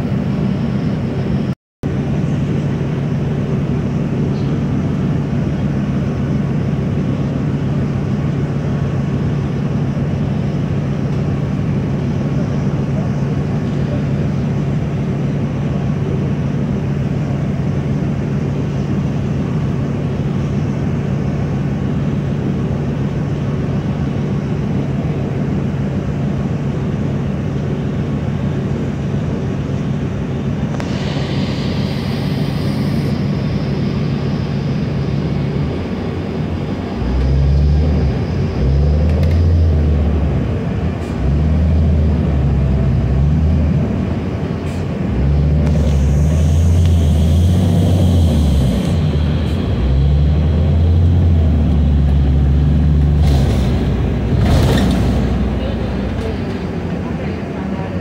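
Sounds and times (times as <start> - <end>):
bus engine: 0.0 - 58.0
high hiss: 30.8 - 34.6.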